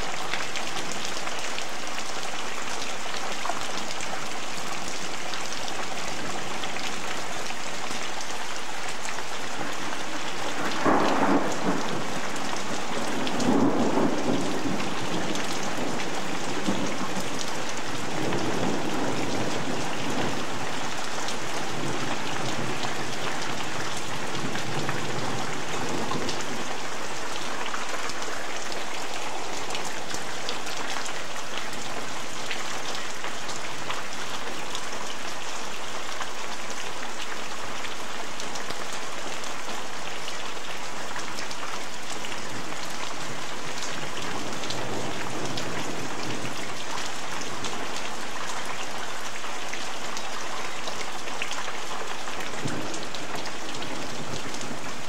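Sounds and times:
heavy rain falling: 0:00.0 - 0:55.0
thunder rolling: 0:10.6 - 0:17.4.

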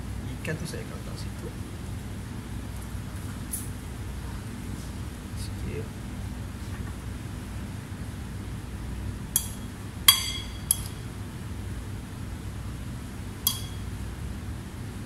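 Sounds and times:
steady low hum: 0:00.0 - 0:15.0
crockery and utensils clinking: 0:09.4 - 0:11.0, 0:13.5 - 0:13.9.

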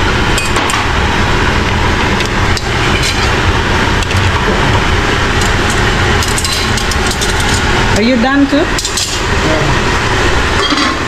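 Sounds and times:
loud steady rushing noise: 0:00.0 - 0:11.0
metal kitchen tongs clicking: 0:08.8 - 0:09.2.

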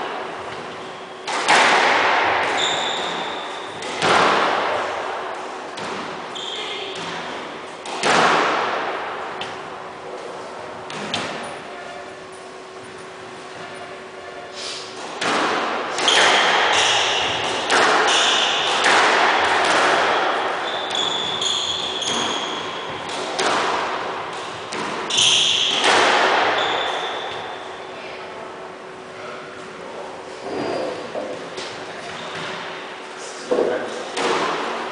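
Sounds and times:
squash ball hits echoing: 0:00.5 - 0:09.7, 0:10.7 - 0:11.6, 0:15.0 - 0:27.7, 0:34.1 - 0:34.9
shoe squeaks: 0:02.5 - 0:03.8, 0:06.3 - 0:07.0, 0:20.6 - 0:23.0, 0:25.1 - 0:25.8, 0:26.5 - 0:27.9, 0:30.3 - 0:31.2.

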